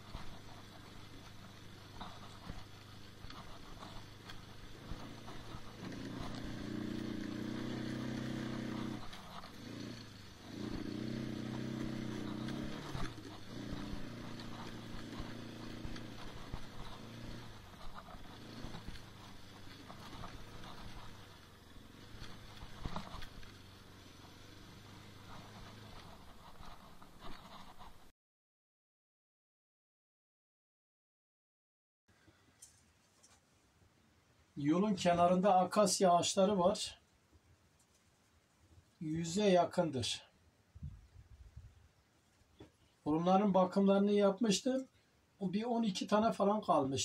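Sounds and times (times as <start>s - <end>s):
atv engine running: 0.0s - 28.1s.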